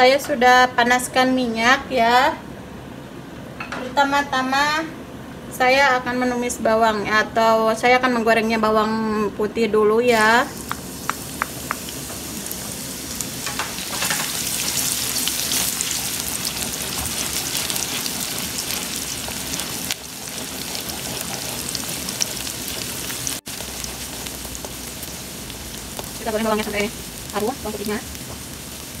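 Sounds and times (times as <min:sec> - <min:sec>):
garlic sizzling in oil: 0:10.1 - 0:29.0.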